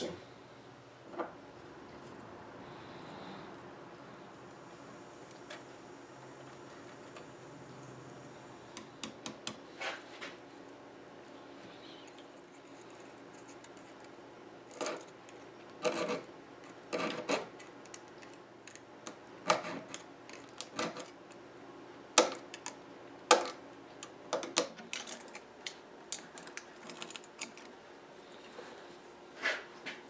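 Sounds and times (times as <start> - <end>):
clicks and taps on wood: 8.7 - 9.6
knife scraping wood veneer: 15.8 - 17.7.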